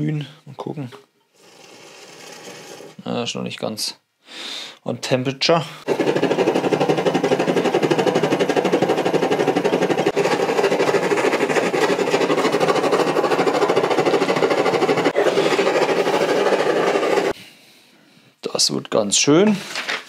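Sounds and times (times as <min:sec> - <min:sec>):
camping stove burner roaring: 0:05.8 - 0:17.4.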